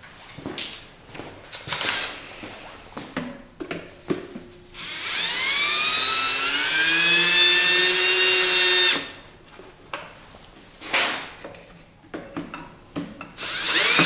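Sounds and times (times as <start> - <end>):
cordless drill motor whine: 4.8 - 9.2, 13.4 - 14.0.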